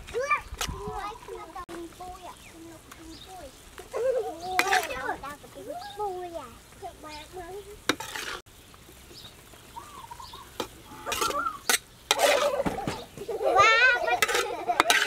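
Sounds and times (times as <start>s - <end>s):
sauce sizzling: 0.8s - 15.0s
metal spatula scraping a wok: 4.5s - 5.0s, 7.8s - 8.5s, 10.6s - 13.2s, 13.8s - 15.0s.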